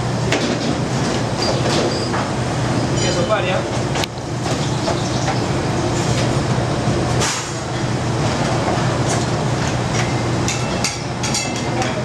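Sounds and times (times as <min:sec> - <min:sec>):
gas burner roaring: 0:00.0 - 0:12.0
utensils clinking: 0:10.0 - 0:12.0.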